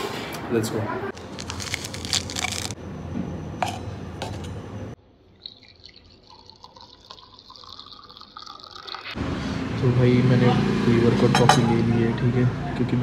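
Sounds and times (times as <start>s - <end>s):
water pouring into container: 5.3s - 9.2s.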